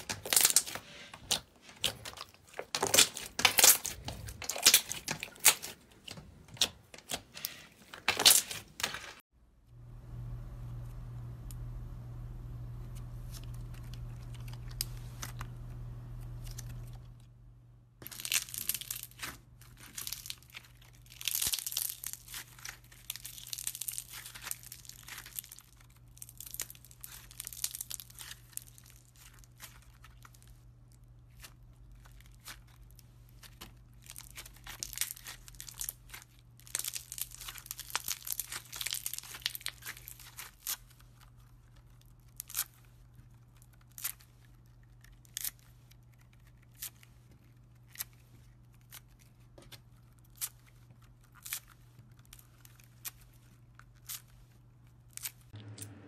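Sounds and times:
slime crackling and tearing: 0.0 - 8.9, 18.0 - 55.5
steady low hum: 9.4 - 18.0, 55.6 - 56.0.

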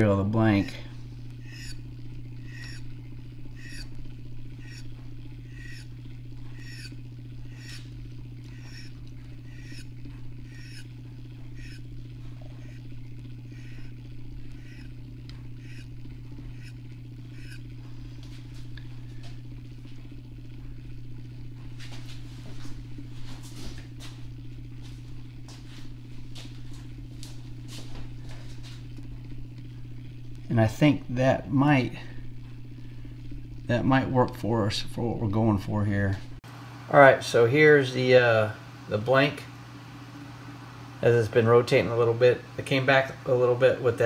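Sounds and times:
motor humming: 0.0 - 44.0
chirping squeak: 1.4 - 1.8, 2.4 - 2.9, 3.6 - 3.9, 4.6 - 4.8, 5.5 - 5.9, 6.6 - 6.9, 7.5 - 7.8, 8.6 - 8.9, 9.5 - 9.9, 10.5 - 10.8, 11.6 - 11.8, 13.5 - 13.9.

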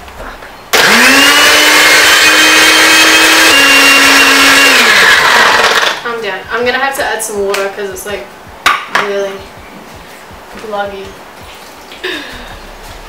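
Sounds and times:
blender motor running: 0.7 - 6.0.

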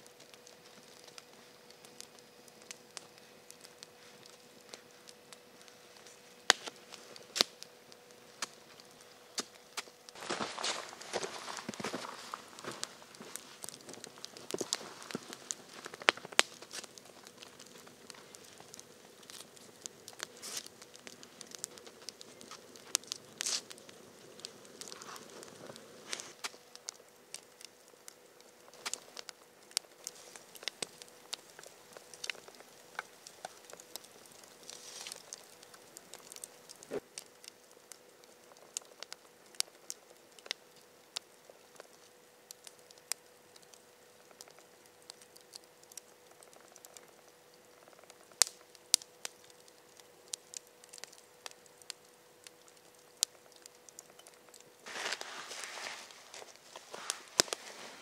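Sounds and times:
campfire crackling: 0.0 - 58.0
crunching of snow and twigs: 8.3 - 39.4, 53.9 - 58.0.

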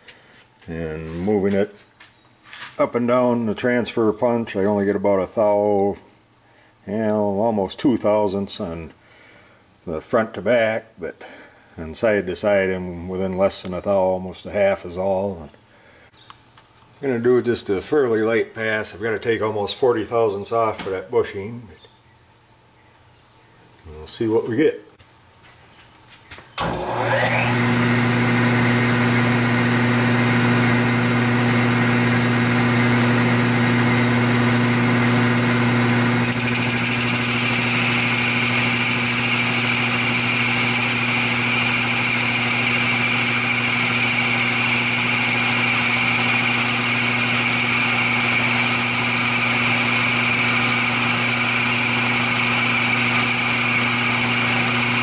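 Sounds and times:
milling machine humming: 26.6 - 55.0.

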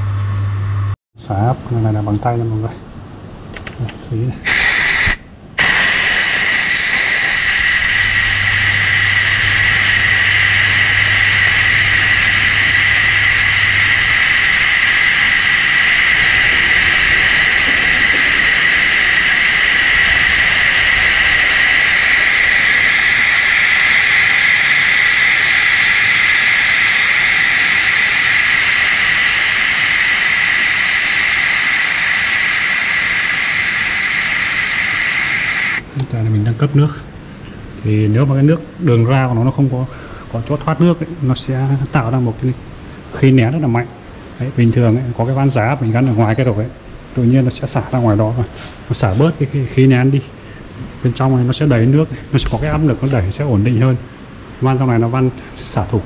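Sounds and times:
low hum: 0.0 - 1.0, 5.0 - 36.0
pressure valve venting hiss: 4.4 - 36.0.

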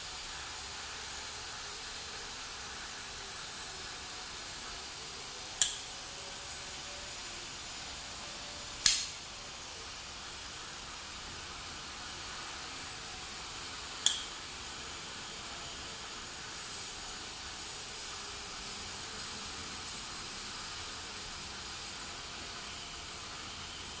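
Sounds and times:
folding knife blade clicking: 5.6 - 5.9, 8.8 - 9.2, 14.0 - 14.3.

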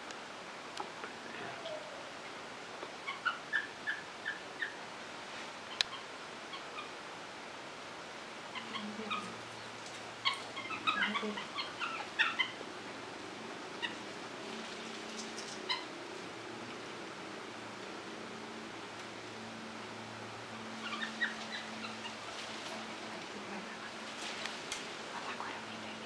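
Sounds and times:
monkeys squeaky chirps: 10.2 - 12.6, 20.8 - 22.3.

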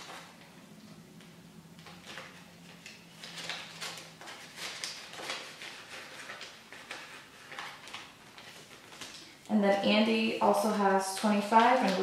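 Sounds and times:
banknotes rustling: 0.0 - 12.0
plastic zipper pouch crinkling: 1.8 - 9.5, 11.2 - 12.0.

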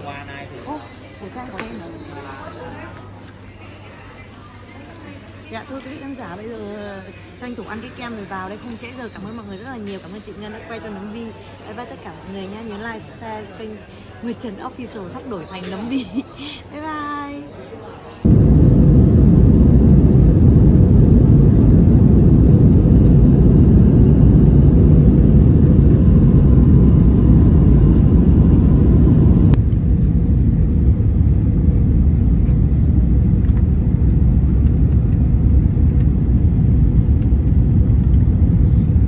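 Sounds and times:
faint steady hum: 18.2 - 39.0
jet engine rumble in cabin: 18.2 - 39.0.

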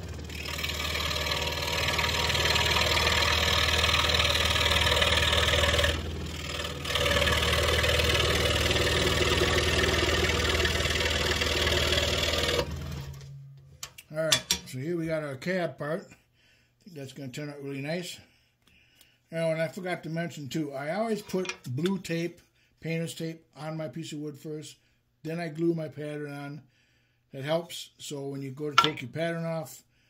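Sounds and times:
scroll saw cutting wood: 0.0 - 13.3.

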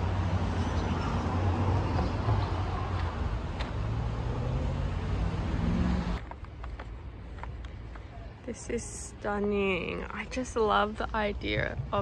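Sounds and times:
vehicle engine humming: 0.0 - 8.0
street traffic noise: 0.0 - 12.0.

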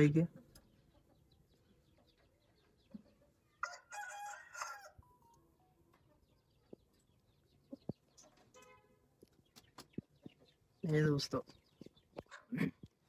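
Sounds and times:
rooster crowing: 3.6 - 5.1
hen clucking: 11.9 - 13.0.

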